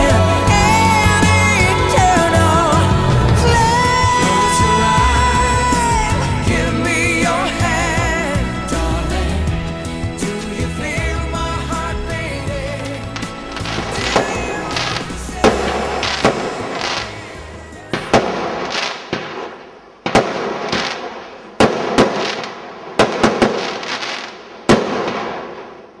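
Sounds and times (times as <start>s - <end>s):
fireworks crackling fizz: 0.0s - 26.0s
fireworks bangs: 12.9s - 26.0s.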